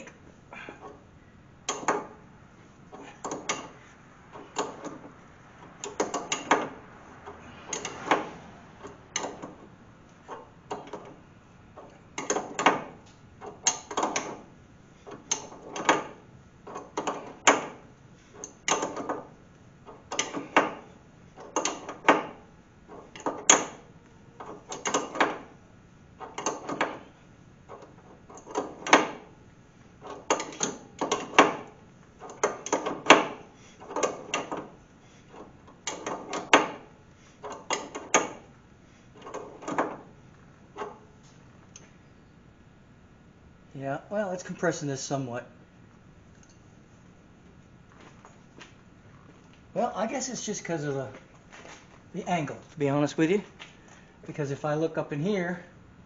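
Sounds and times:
ratcheting wrench clicking: 5.8s - 9.6s, 19.9s - 20.8s, 21.4s - 22.4s, 30.0s - 34.7s.

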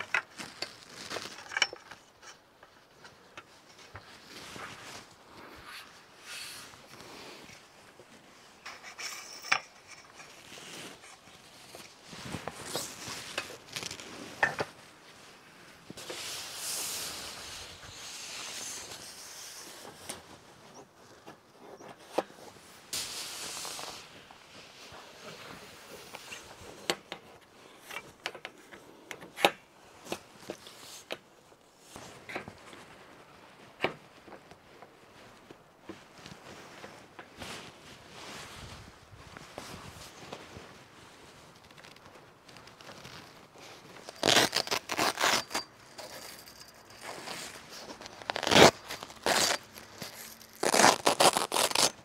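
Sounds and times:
metal poles clicking and knocking: 0.0s - 2.7s, 8.6s - 10.4s
fabric rustling and swishing: 0.0s - 27.8s, 29.8s - 52.0s.

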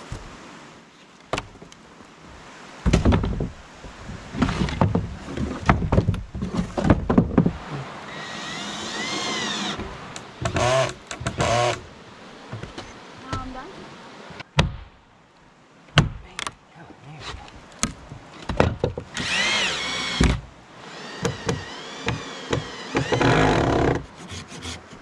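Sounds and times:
wood squeaking and creaking: 4.4s - 11.8s, 18.1s - 25.0s.

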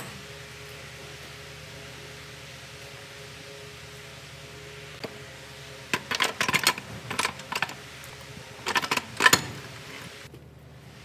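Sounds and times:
metal gearbox parts clinking: 8.6s - 9.6s.

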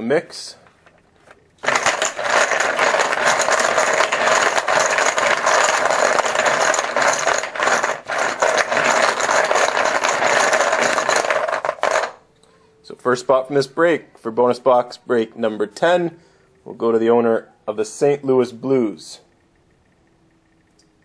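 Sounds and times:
poker chips clattering: 1.6s - 12.2s.

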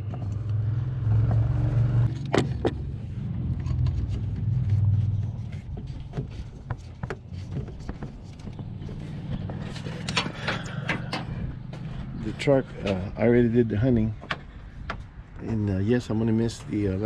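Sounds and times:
truck engine idling: 4.8s - 15.4s.

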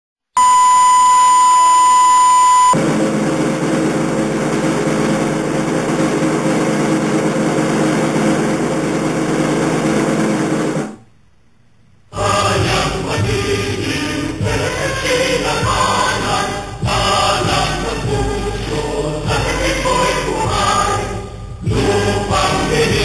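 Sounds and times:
test tone: 0.4s - 2.8s
low hum: 0.4s - 23.0s
music: 12.2s - 23.0s.

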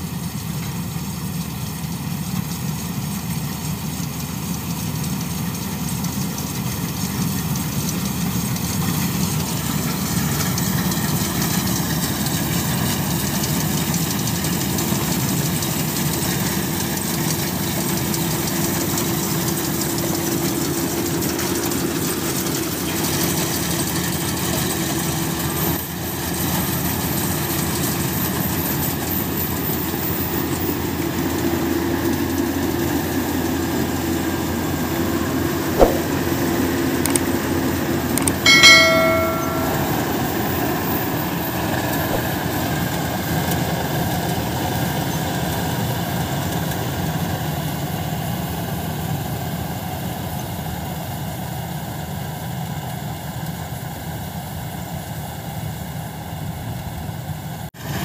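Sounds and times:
combine harvester engine drone: 0.0s - 25.3s.

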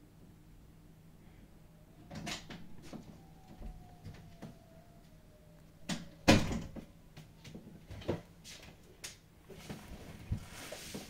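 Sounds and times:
soft hiss: 8.4s - 11.0s.

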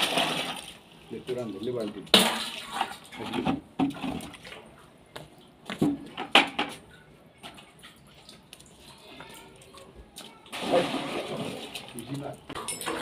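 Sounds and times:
water sloshing in plastic bucket: 1.8s - 4.8s, 10.2s - 13.0s.

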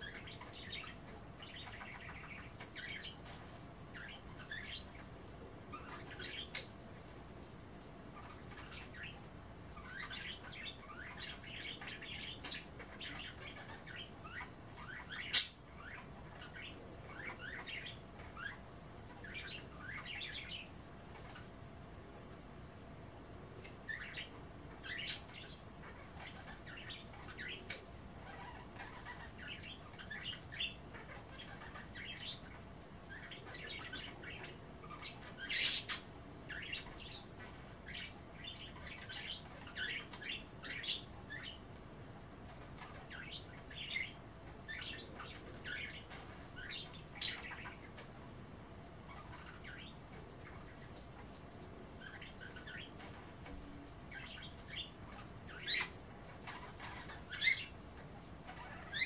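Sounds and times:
budgerigars chirping: 0.0s - 6.8s, 8.1s - 21.5s, 23.6s - 41.7s, 42.5s - 48.2s, 49.0s - 59.0s
sharp bird calls: 8.2s - 21.5s, 42.8s - 48.1s, 52.0s - 57.8s.

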